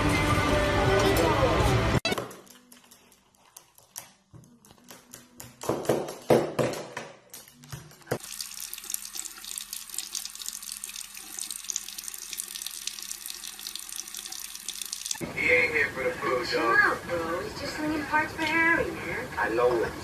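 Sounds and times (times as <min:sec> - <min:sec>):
faucet running into sink: 0:08.1 - 0:15.2.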